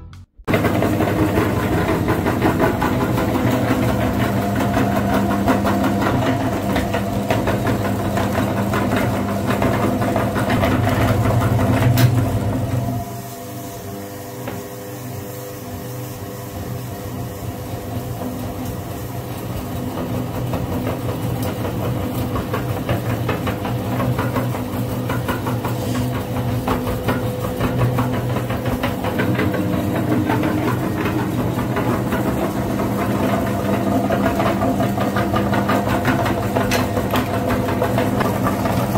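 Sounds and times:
meat grinder motor hum: 0.5s - 38.9s.

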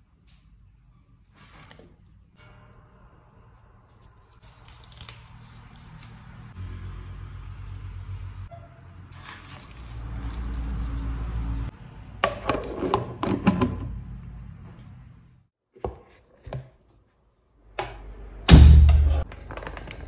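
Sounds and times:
soft wet rustling of mixing: 9.1s - 11.7s.

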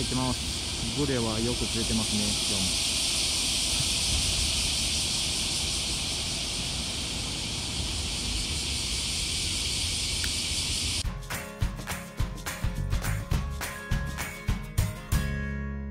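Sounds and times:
cicadas chorus: 0.0s - 11.0s
wind rumble on microphone: 0.0s - 11.0s.

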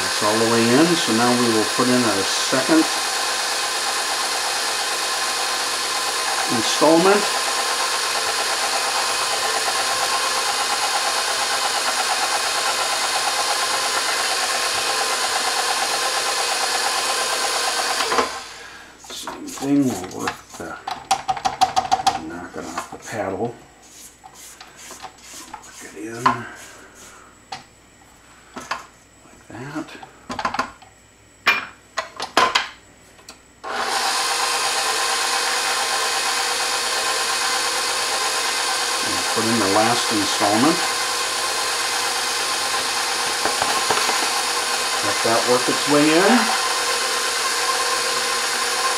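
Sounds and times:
stand mixer motor whirring: 0.0s - 18.6s, 33.6s - 48.9s.

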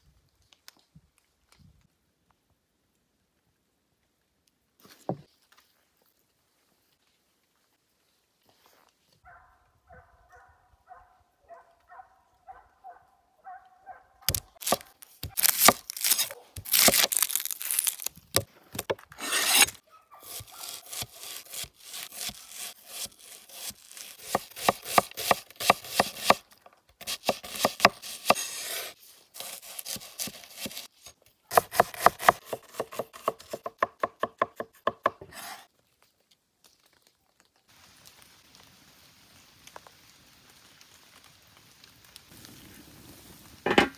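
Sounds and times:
knife slicing on wooden board: 14.3s - 26.4s, 27.0s - 30.9s, 31.5s - 35.7s
knife chopping on cutting board: 20.3s - 26.4s, 27.0s - 28.8s, 31.5s - 35.6s
faint hiss: 37.6s - 43.9s.

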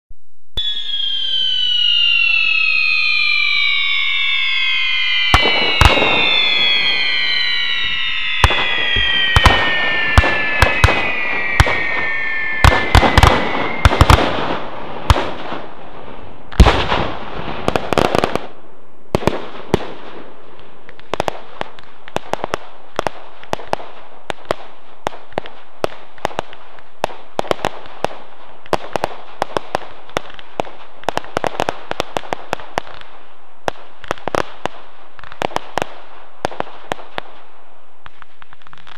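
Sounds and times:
firework whistles gliding down: 0.6s - 16.7s
firework bangs: 0.6s - 38.9s
firework pops and crackles: 4.9s - 15.7s, 16.5s - 38.9s.

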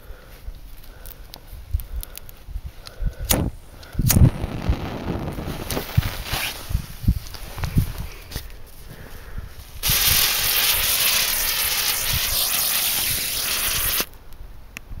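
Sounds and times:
firework spinner hissing sparks: 9.8s - 14.1s.

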